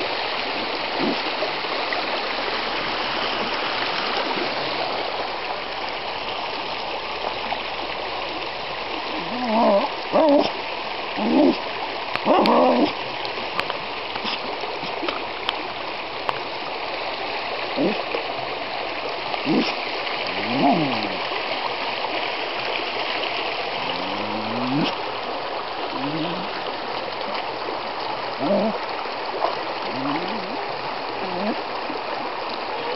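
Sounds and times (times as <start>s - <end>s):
stream water running: 0.0s - 32.9s
small dog barking: 12.3s - 12.9s.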